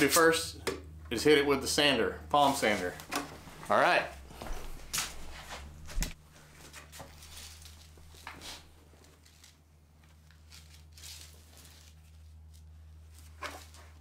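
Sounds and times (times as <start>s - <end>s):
low steady hum: 0.0s - 14.0s
handling rustles and scrapes: 2.4s - 3.7s, 4.4s - 14.0s.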